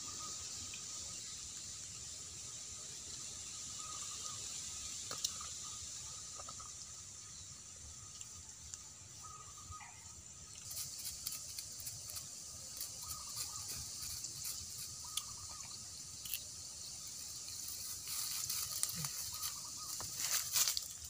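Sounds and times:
steady high hiss: 0:00.0 - 0:21.0
dry leaves crackling: 0:10.6 - 0:15.6, 0:17.1 - 0:21.0.

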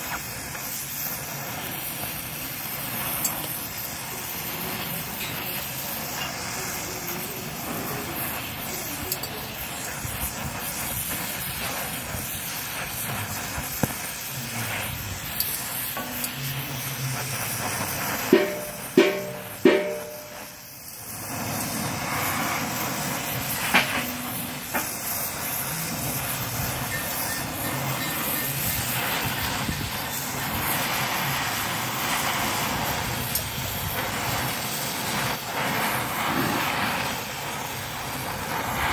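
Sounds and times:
gas torch flame rushing: 0:00.0 - 0:38.9
sharp ringing knocks: 0:18.4 - 0:20.5.

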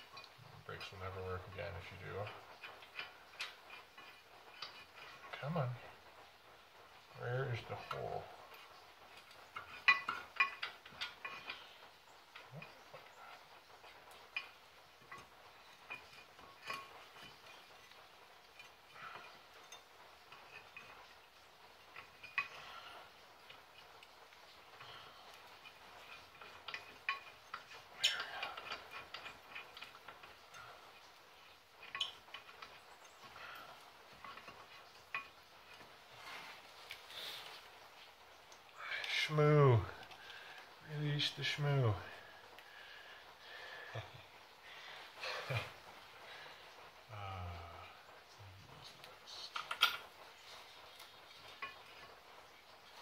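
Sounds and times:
light metallic clinks and taps: 0:00.0 - 0:53.0
metallic clicks of brake hardware: 0:25.3 - 0:30.6, 0:31.8 - 0:33.2.

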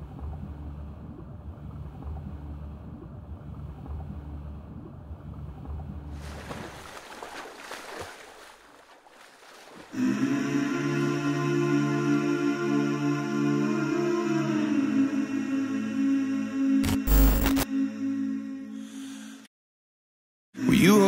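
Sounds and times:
swimmer's strokes splashing: 0:06.2 - 0:10.0.

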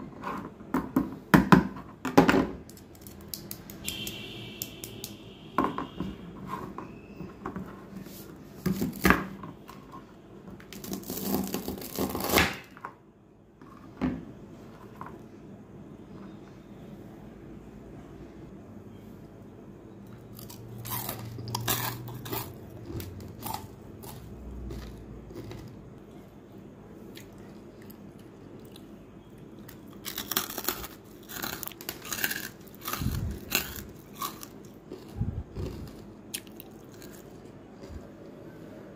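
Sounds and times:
crunchy food chewing: 0:20.2 - 0:26.4, 0:27.1 - 0:38.4.

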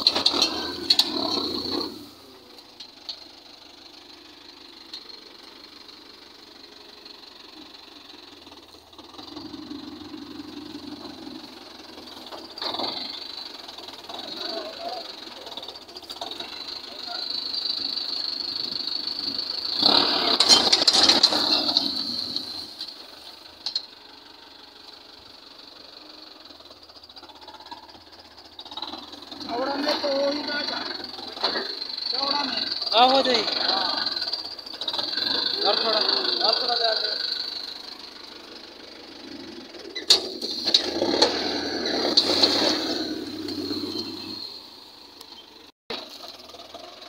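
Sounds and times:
plough metallic clanks: 0:00.0 - 0:02.0, 0:20.0 - 0:23.0, 0:40.0 - 0:41.4
soil crunching and rattling: 0:00.0 - 0:02.2, 0:19.6 - 0:23.8, 0:39.9 - 0:44.6
tractor diesel engine working: 0:00.0 - 0:47.0.

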